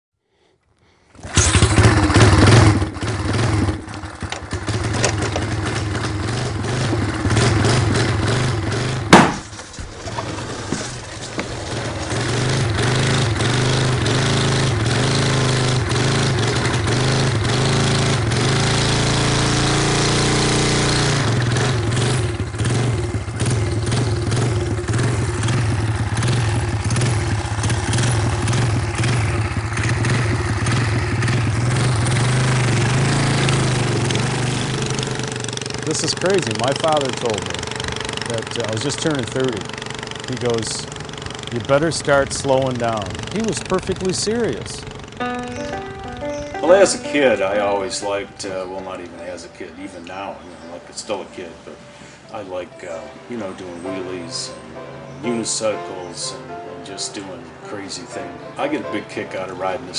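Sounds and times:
motorcycle engine revving: 1.2s - 49.5s
sharp loud crack: 8.8s - 9.6s.

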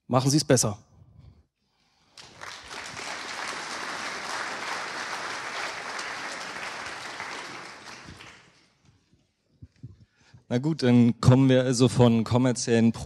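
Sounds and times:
audience applauding: 2.1s - 8.8s.

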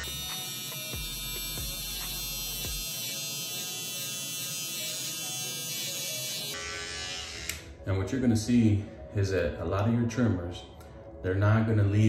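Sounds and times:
electric hair trimmer buzzing: 0.0s - 7.8s.

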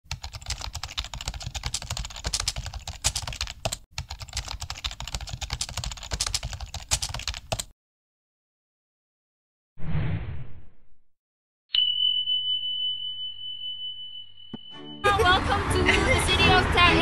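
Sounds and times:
fast typing on a keyboard: 0.0s - 7.7s.

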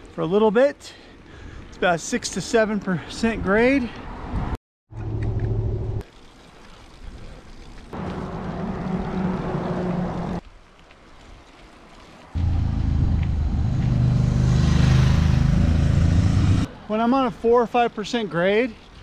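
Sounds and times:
vehicle engines passing: 8.0s - 10.4s, 12.2s - 17.0s
motorcycle engine approaching: 12.4s - 16.7s.

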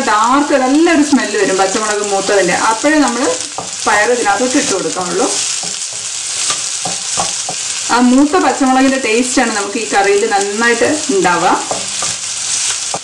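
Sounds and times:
food sizzling in oil: 0.0s - 13.0s
spatula scraping and knocking pan: 1.0s - 8.4s, 9.4s - 13.0s.

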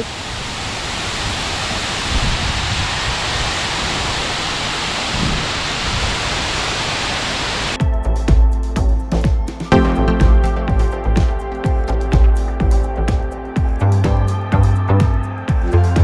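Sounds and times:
water cascading down waterfall: 0.0s - 7.8s
electronic music with beat: 7.8s - 16.0s.

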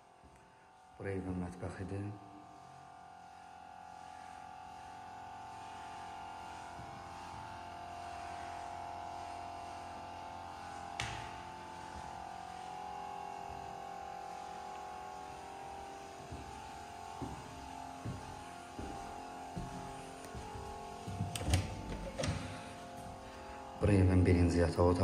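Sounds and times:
soft footsteps: 14.4s - 23.8s.

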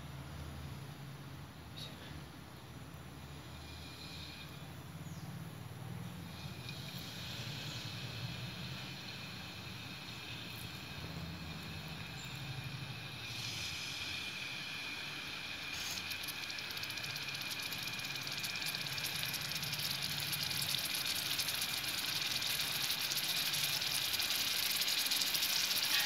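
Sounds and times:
fish sizzling on a griddle: 7.0s - 26.0s.

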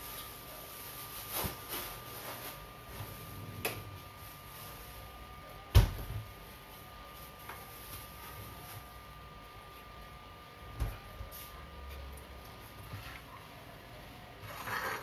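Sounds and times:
kitchen knocks and clunks: 5.7s - 6.3s.

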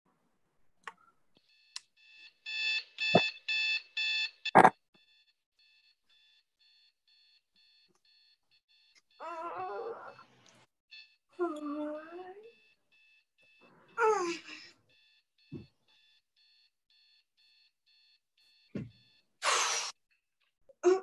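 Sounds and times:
alarm clock beeping: 1.5s - 9.2s, 12.6s - 19.2s.

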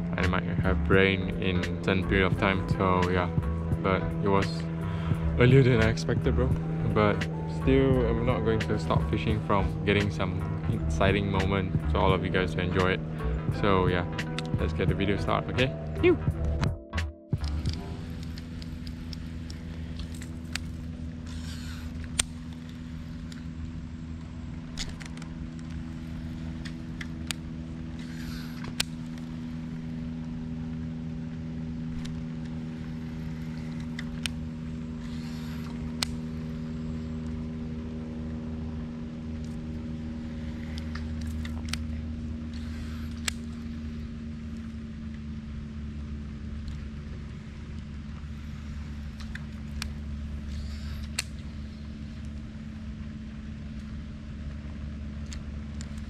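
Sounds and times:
fishing reel whirring: 0.0s - 15.6s, 17.4s - 45.2s, 45.9s - 54.4s
steady low hum: 0.0s - 56.0s
sharp clicks: 14.1s - 16.8s, 17.4s - 23.5s, 24.2s - 29.4s, 49.1s - 51.6s.

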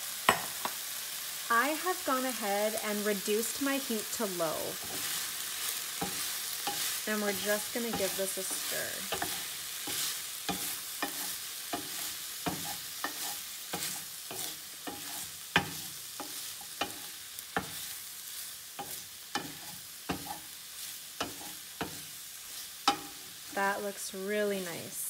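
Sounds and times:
vegetables sizzling in a pan: 0.0s - 25.0s
wooden spoon knocking a pan: 11.8s - 17.8s.

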